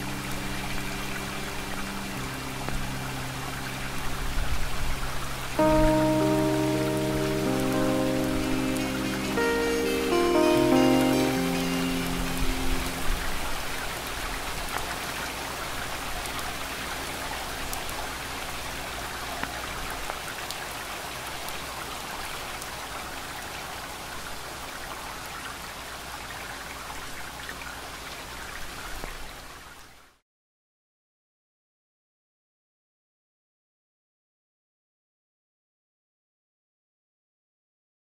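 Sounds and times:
steady rain falling: 0.0 - 30.2
held music note: 5.6 - 13.7.

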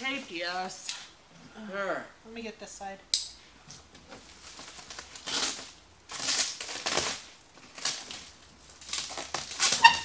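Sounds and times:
cardboard and tape scratching: 4.2 - 10.0.

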